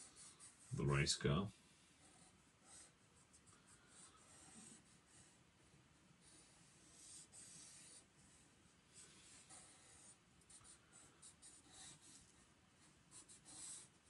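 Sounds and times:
marker scratching on paper: 0.0s - 0.8s, 2.0s - 5.4s, 6.2s - 14.0s.

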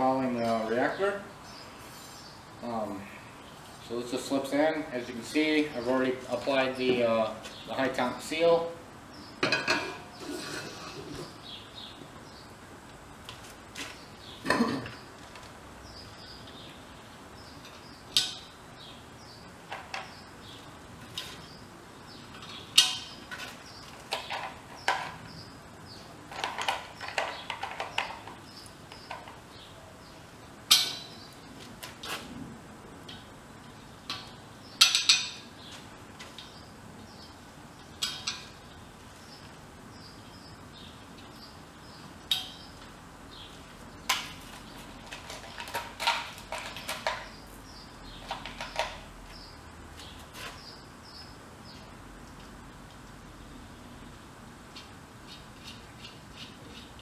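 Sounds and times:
tools clanking on workbench: 9.4s - 10.8s.

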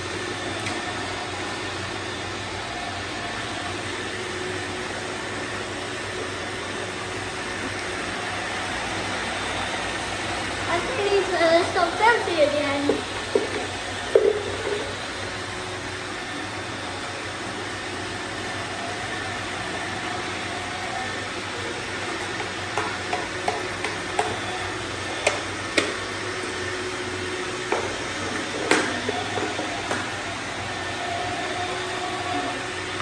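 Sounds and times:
robot vacuums whirring: 0.0s - 33.0s.

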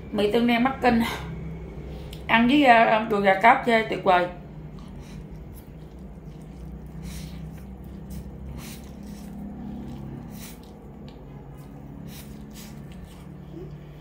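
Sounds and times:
steady low hum: 0.0s - 14.0s
wet chewing: 4.6s - 14.0s
noodle slurping: 4.8s - 13.7s.

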